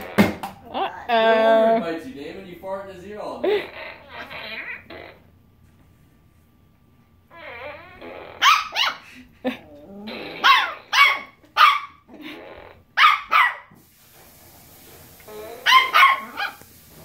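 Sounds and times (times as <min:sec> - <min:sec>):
dog barking: 0:08.4 - 0:09.0, 0:10.4 - 0:12.0, 0:13.0 - 0:13.7, 0:15.6 - 0:16.6.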